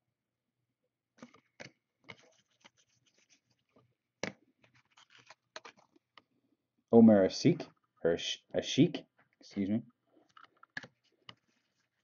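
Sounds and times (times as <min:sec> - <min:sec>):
cards being flipped through: 0:01.2 - 0:06.0.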